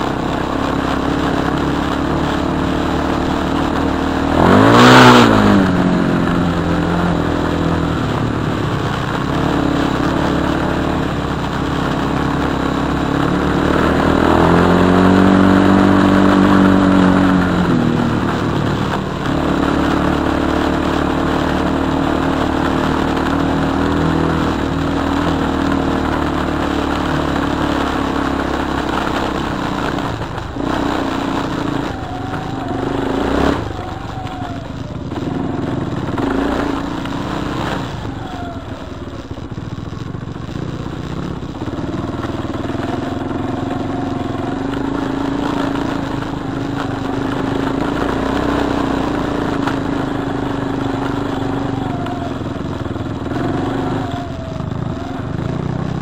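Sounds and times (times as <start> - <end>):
atv engine revving: 0.0 - 56.0.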